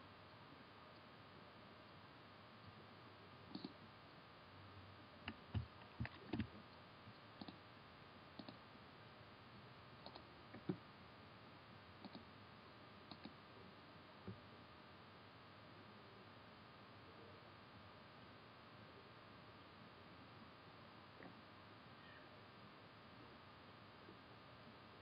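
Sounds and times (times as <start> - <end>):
low steady hiss: 0.0 - 25.0
computer mouse clicks: 3.5 - 3.8, 5.3 - 6.6, 7.4 - 7.6, 8.4 - 8.6, 10.0 - 10.8, 12.0 - 12.3, 13.1 - 13.4.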